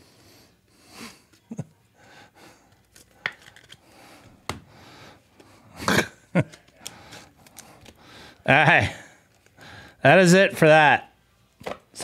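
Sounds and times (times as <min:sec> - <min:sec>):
cards clicking and tapping: 0:06.4 - 0:08.0.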